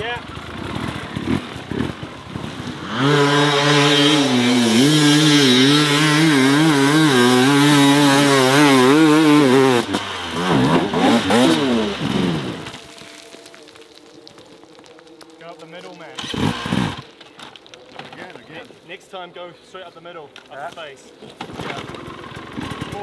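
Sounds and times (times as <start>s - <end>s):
dirt bike engine revving: 0.0s - 13.0s, 16.1s - 17.1s, 21.4s - 23.0s.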